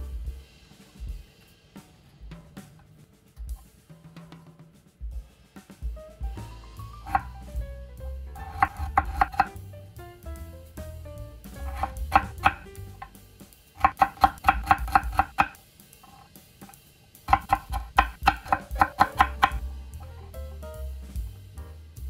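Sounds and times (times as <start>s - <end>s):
background music: 5.8s - 15.6s, 17.2s - 22.0s
knife chopping on wooden board: 7.1s - 7.4s, 8.4s - 9.6s, 11.5s - 13.2s, 13.8s - 16.2s, 17.3s - 20.1s.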